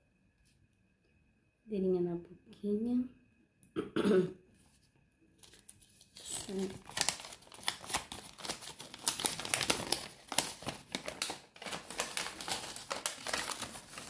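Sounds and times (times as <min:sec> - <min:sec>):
paper leaflet crinkling: 0:05.4 - 0:14.0.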